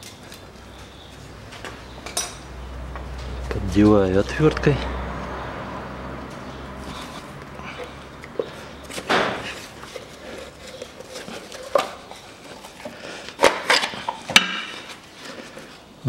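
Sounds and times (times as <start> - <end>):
rubber scraping on metal: 6.8 - 15.8.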